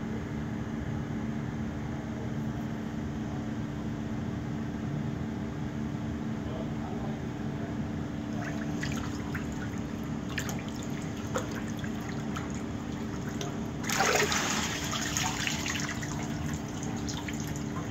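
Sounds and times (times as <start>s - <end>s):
water dripping and splashing: 8.3s - 17.9s
rush of pouring water: 8.4s - 17.9s.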